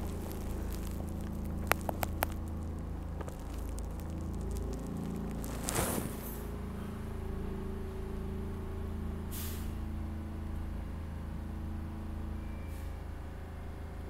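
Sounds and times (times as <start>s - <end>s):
subway car equipment hum: 0.0s - 5.5s, 6.1s - 14.0s
air brake hiss: 9.3s - 9.8s, 12.6s - 13.0s.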